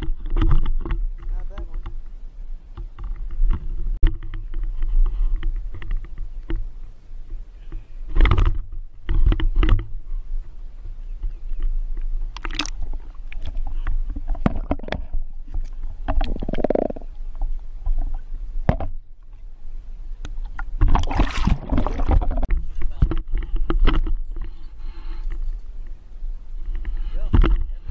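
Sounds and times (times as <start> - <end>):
muffled underwater rumble: 0.0 - 27.9
water gurgling: 12.3 - 15.3, 16.0 - 17.3, 20.6 - 22.5.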